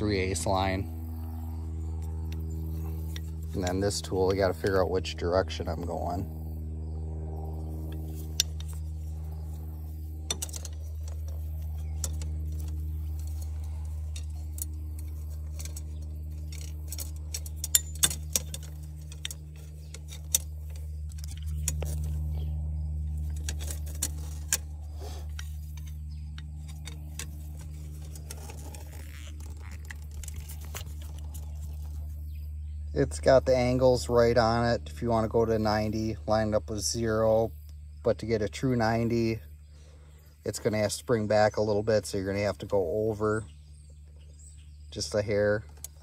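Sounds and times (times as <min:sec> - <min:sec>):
steady low hum: 0:00.0 - 0:46.0
metallic clicks of tubing bender: 0:10.2 - 0:22.2.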